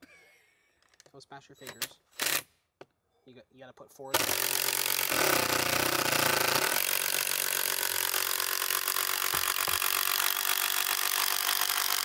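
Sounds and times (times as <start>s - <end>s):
cordless drill driving screw: 2.1s - 2.5s, 4.1s - 12.0s.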